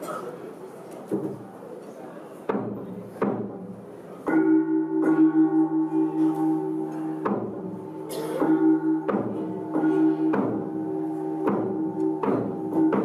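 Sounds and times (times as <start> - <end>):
sharp percussive strikes: 2.5 - 13.0
gong ringing: 4.3 - 13.0.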